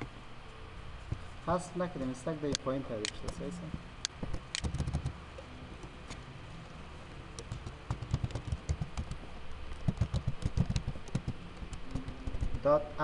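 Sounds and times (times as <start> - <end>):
computer keyboard typing: 4.4 - 5.2, 7.4 - 12.8.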